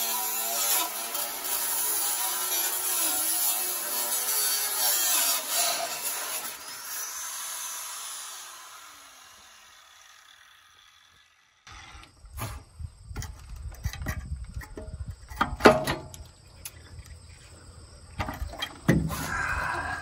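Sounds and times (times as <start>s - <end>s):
angle grinder cutting steel pipe: 0.0s - 12.0s.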